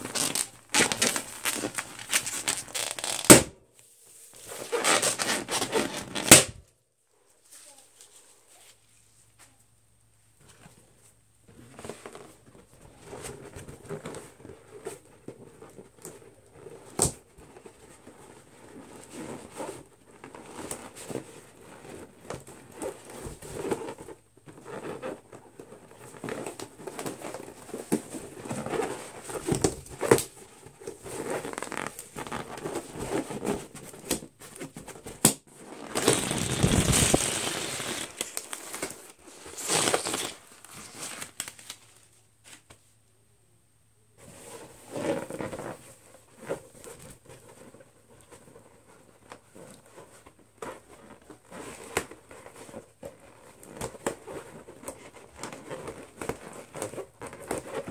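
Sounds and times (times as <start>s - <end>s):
balloons rubbing and squeaking: 0.0s - 3.5s, 4.3s - 6.6s, 11.5s - 41.1s
balloon sharp snaps: 6.2s - 6.6s.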